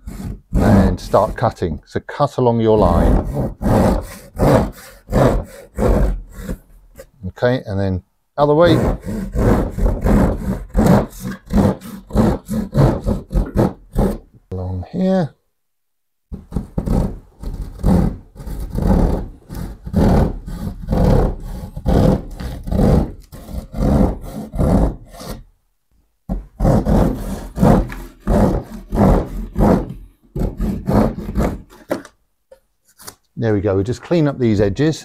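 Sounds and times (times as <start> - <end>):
saw rasping through plasterboard: 0.0 - 1.7, 2.7 - 7.2, 8.6 - 14.3, 16.3 - 25.5, 26.4 - 32.0.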